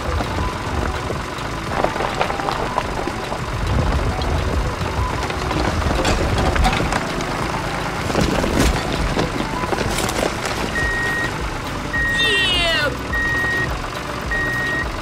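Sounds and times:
low engine-like rumble: 0.0 - 15.0
high beep: 10.8 - 14.9.

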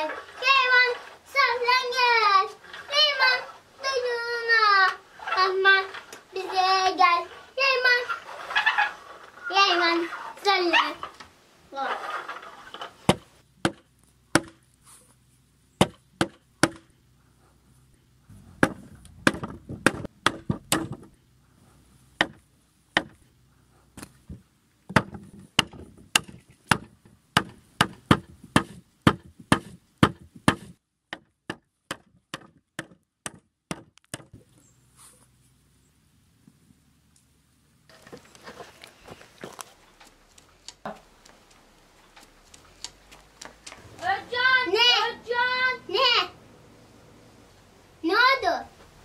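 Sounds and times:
hand tool knocking on wood: 24.9 - 34.4.

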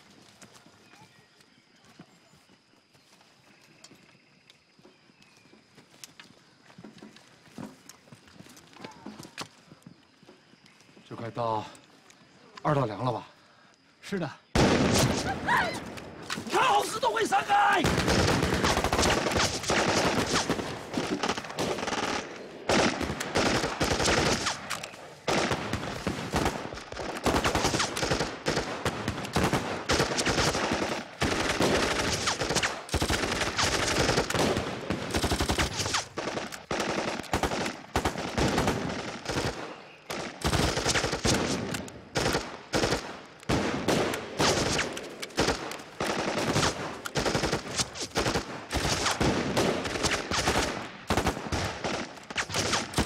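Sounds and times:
automatic gunfire bursts: 17.8 - 24.7, 25.3 - 53.0
rifle shots: 17.8 - 53.0.

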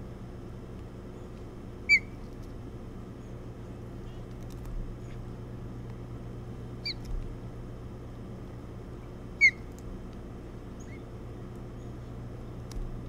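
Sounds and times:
steady low hum: 0.0 - 13.0
osprey chirping: 1.2 - 2.2, 6.8 - 7.1, 9.4 - 9.7, 10.7 - 11.1.

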